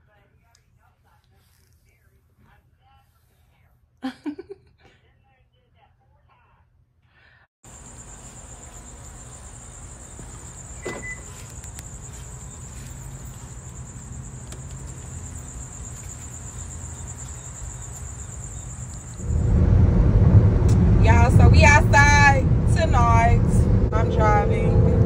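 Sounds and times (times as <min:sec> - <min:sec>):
night insects trilling: 0:07.6 - 0:19.6
road noise inside moving car: 0:07.7 - 0:25.0
low rumble: 0:19.1 - 0:25.0.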